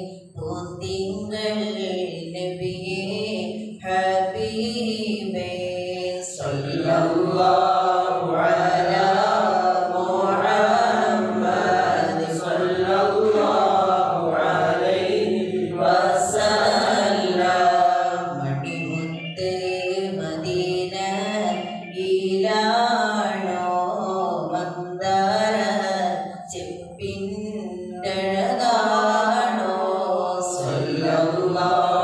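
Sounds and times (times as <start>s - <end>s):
men chanting devotional verse: 5.4s - 22.6s, 28.0s - 32.0s.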